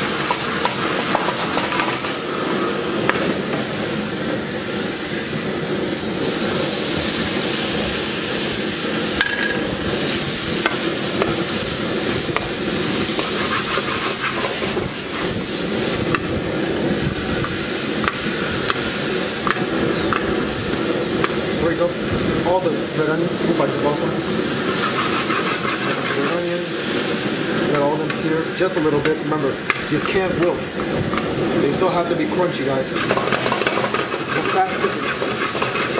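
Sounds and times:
stir-fry sizzling in a wok: 0.0 - 35.9
spatula scraping a metal wok: 13.0 - 15.4, 24.7 - 26.5, 32.9 - 35.9.

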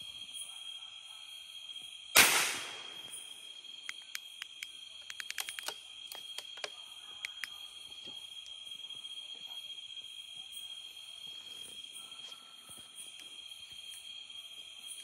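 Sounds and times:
high-pitched insect chorus: 0.0 - 15.0
gunshot: 2.2 - 3.0.

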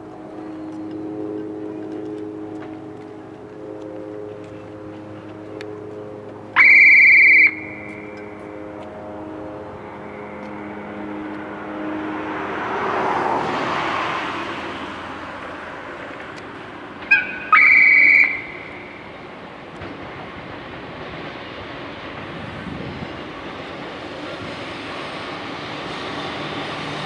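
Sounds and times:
train rushing past: 0.0 - 27.0
high-pitched locomotive whistle: 0.3 - 14.4, 17.0 - 19.2.

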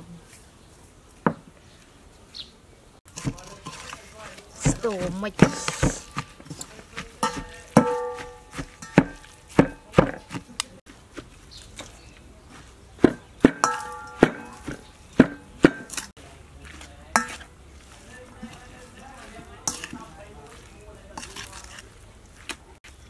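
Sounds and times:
pestle knocking in steel bowl: 4.6 - 10.6, 13.0 - 16.1
bowl ringing: 13.6 - 14.6.

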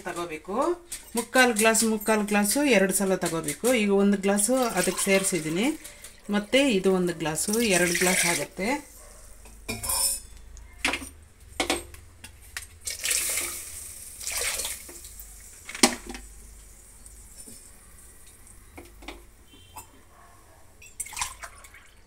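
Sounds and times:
steel vessels and ladle clinking: 0.9 - 6.3, 9.4 - 12.0
water splashing into a pot: 4.4 - 6.2, 12.8 - 16.4, 20.8 - 22.0.

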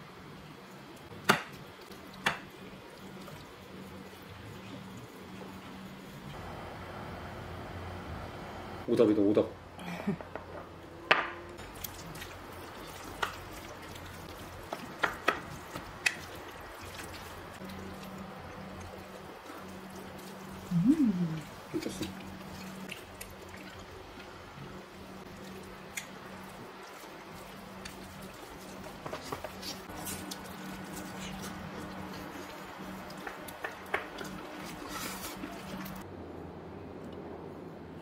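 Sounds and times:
wet squishy stirring: 11.6 - 36.0.

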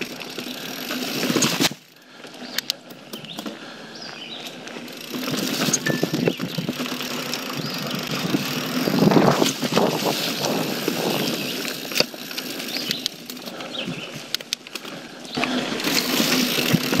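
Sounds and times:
bike rattling and knocking: 0.0 - 17.0
bike tyre rumble on dirt: 0.0 - 17.0
wind rushing over microphone: 7.6 - 11.8.

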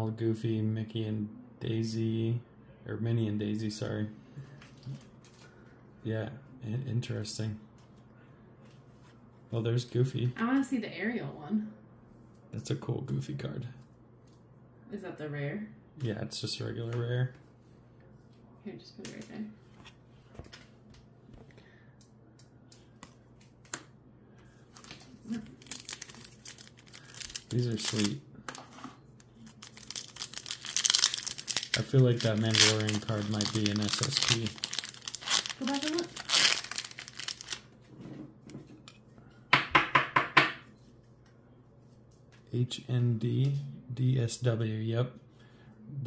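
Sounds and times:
low steady hum: 0.0 - 39.7, 40.6 - 46.0
trading cards and foil packs handled: 4.5 - 5.6, 22.0 - 37.8.

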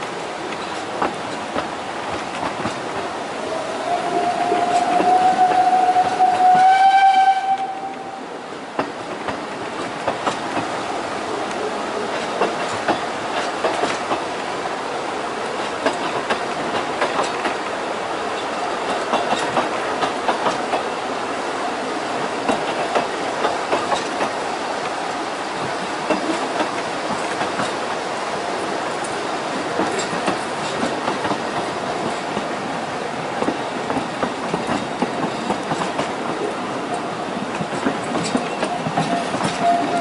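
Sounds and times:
wheels clicking over rail joints: 0.0 - 3.2, 7.5 - 14.4, 15.4 - 21.1, 22.1 - 40.0
train carriage rattling: 0.0 - 40.0
steam locomotive whistle: 3.4 - 8.2, 39.0 - 40.0.

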